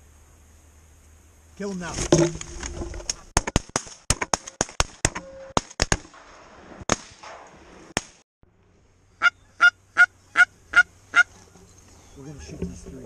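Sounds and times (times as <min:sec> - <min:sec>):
goose honking: 0:09.2 - 0:12.8
goose clucking: 0:09.2 - 0:12.9.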